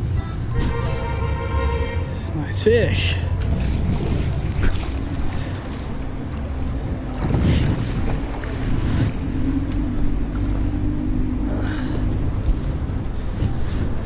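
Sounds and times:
wind buffeting microphone: 3.2s - 14.0s.

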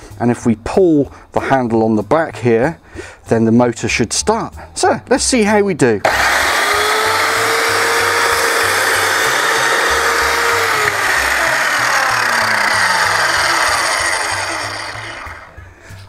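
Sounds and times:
mitre saw cutting wood: 6.0s - 15.6s
saw motor whine spinning down: 6.1s - 15.6s.

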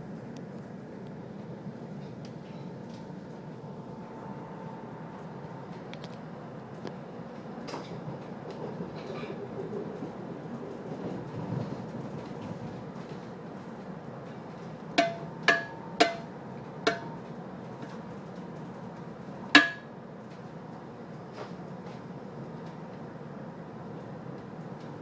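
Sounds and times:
train carriage rumble: 0.0s - 25.0s
sharp ringing knocks: 15.0s - 16.3s, 16.9s - 17.2s, 19.6s - 19.9s.

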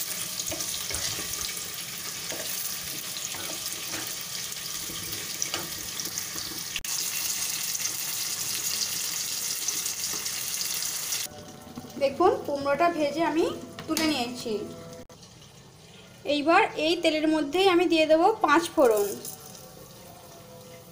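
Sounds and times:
food sizzling in hot oil: 0.0s - 11.3s.

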